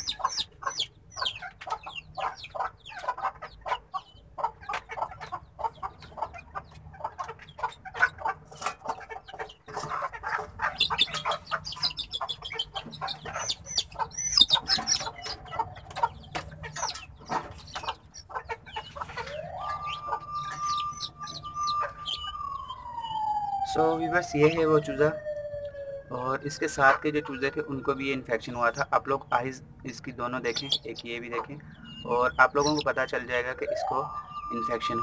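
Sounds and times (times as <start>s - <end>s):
high peeps: 0.0s - 4.2s, 9.3s - 25.0s, 30.3s - 35.0s
chickens clucking: 0.0s - 23.1s, 26.2s - 35.0s
wailing tone: 19.2s - 28.2s, 33.5s - 35.0s.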